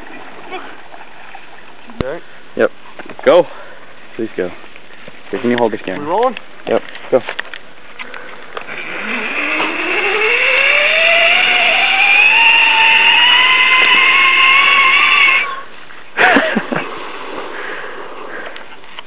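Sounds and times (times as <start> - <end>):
zipline pulley whine on cable: 8.6 - 15.6.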